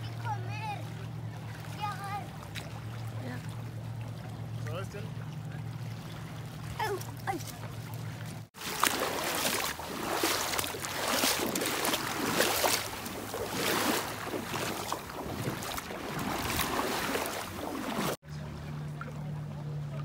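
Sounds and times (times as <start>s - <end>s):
water rushing and splashing: 0.0s - 20.0s
wind buffeting microphone: 9.8s - 18.2s.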